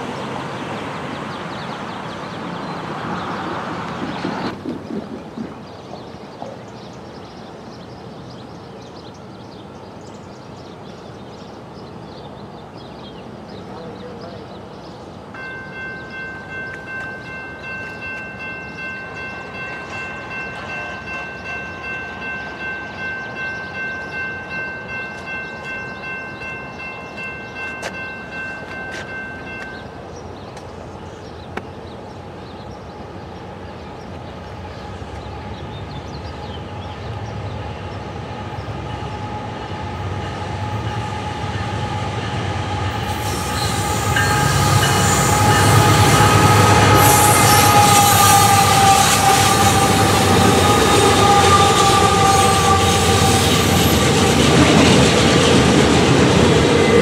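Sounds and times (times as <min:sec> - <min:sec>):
diesel freight train rumbling: 0:00.0 - 0:57.0
railroad crossing bell ringing: 0:15.3 - 0:30.4, 0:40.0 - 0:55.6.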